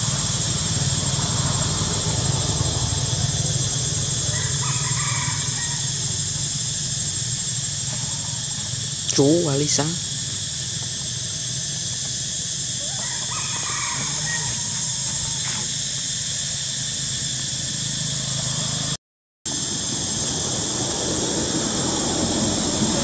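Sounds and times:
high-pitched outdoor drone: 0:00.0 - 0:23.0
low hum: 0:00.0 - 0:23.0.

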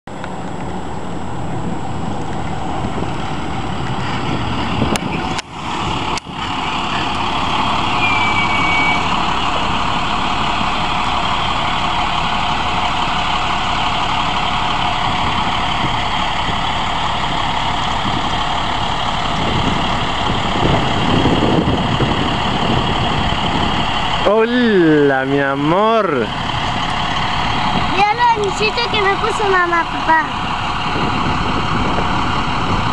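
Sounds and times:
bus engine idling: 0:00.1 - 0:32.9
short high squeal: 0:07.9 - 0:09.2.

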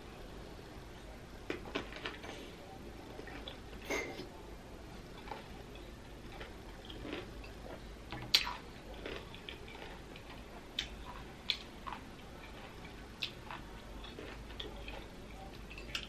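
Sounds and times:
crunchy pickle chewing: 0:06.2 - 0:16.0.

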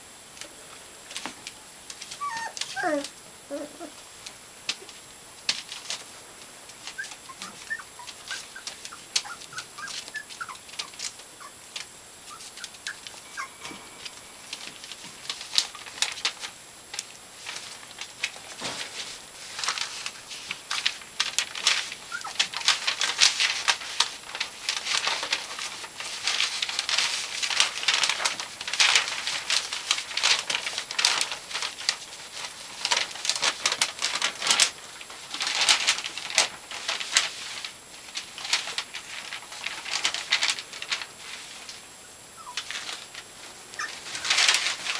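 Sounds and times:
puppy pads rustling: 0:00.4 - 0:44.9
puppy squeaks: 0:02.2 - 0:03.9, 0:07.0 - 0:10.6, 0:12.3 - 0:13.5, 0:42.4 - 0:42.6, 0:43.8 - 0:44.0.

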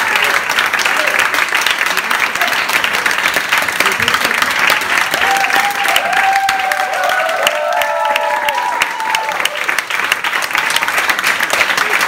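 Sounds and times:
audience applauding: 0:00.0 - 0:12.0
long held whoops: 0:05.1 - 0:09.7.

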